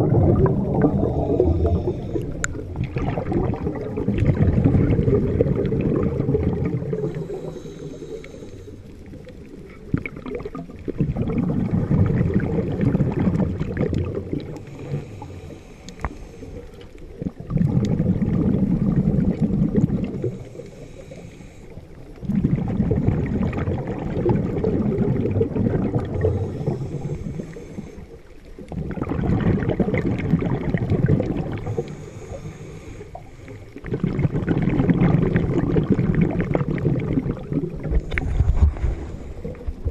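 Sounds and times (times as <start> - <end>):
exhaled air bubbling underwater: 0.0 - 39.9
regulator hiss on inhale: 1.0 - 2.7, 6.8 - 9.2, 14.5 - 17.1, 20.2 - 22.1, 26.2 - 28.5, 31.6 - 33.8, 37.9 - 39.9.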